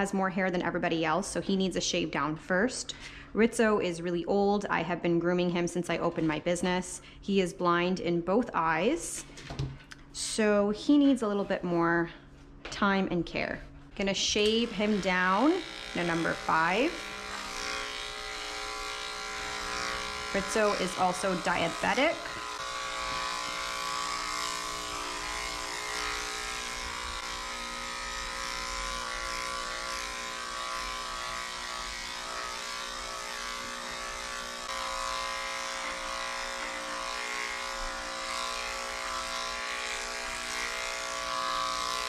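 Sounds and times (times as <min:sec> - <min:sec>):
electric clipper buzzing: 0:14.0 - 0:42.0.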